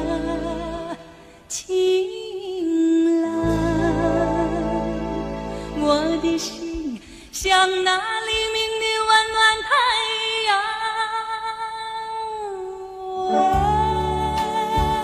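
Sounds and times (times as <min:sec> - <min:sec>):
woman singing pop ballad: 0:00.0 - 0:15.0
sparse music accompaniment: 0:03.4 - 0:07.1.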